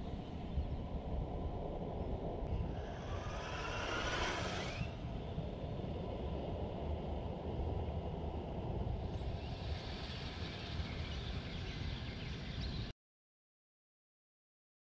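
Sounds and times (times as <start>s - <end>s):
electric motor and gears whining: 2.7s - 5.1s.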